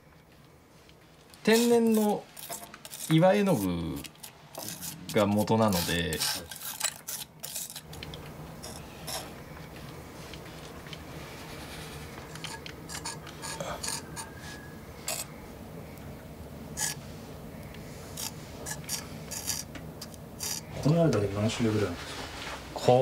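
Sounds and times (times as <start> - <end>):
steady low hum: 0.0 - 23.0
metal spatula scraping gritty paste: 1.5 - 8.0, 18.2 - 20.7.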